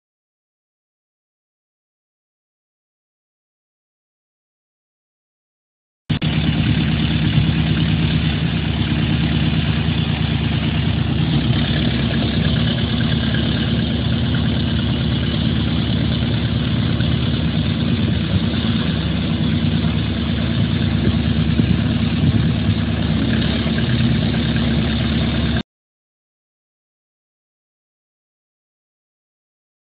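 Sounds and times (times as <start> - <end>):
boat engine running: 6.1 - 25.6.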